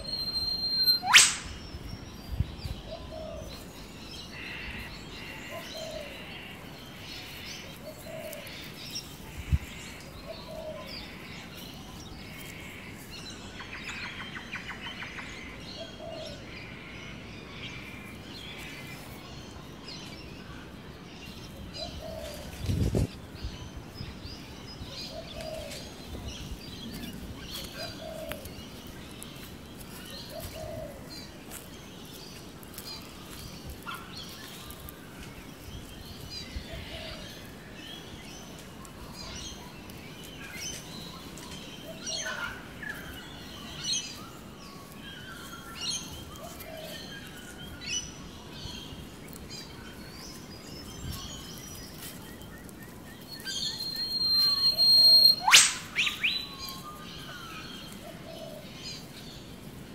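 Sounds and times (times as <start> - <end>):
bird chirps: 0.0 - 4.4, 51.0 - 58.2.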